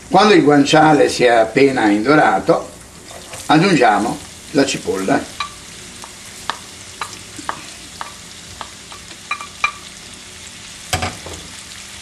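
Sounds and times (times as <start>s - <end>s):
onion sizzling in oil: 0.0s - 12.0s
wooden spoon tapping and scraping: 5.3s - 9.8s.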